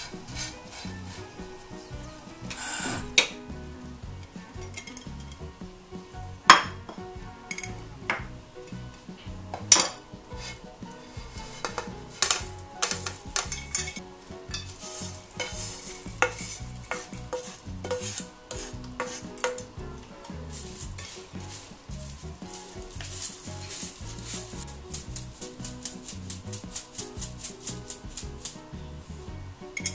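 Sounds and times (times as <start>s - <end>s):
spoon knocking pan and strainer: 9.5s - 21.7s.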